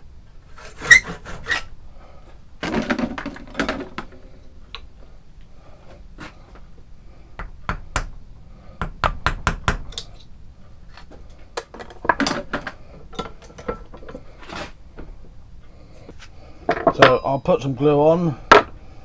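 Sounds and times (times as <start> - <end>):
tools knocking and scraping: 0.6 - 1.6, 10.9 - 15.1, 16.1 - 17.3, 18.5 - 18.8.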